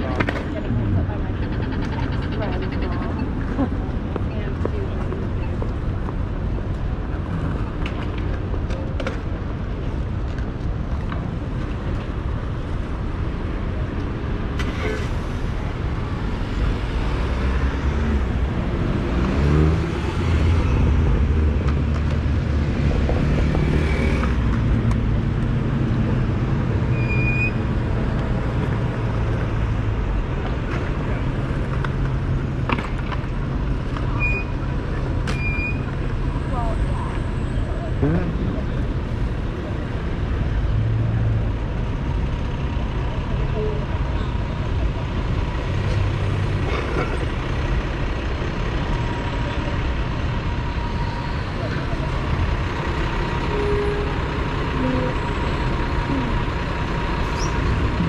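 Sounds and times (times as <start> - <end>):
cars driving past: 12.1 - 58.0.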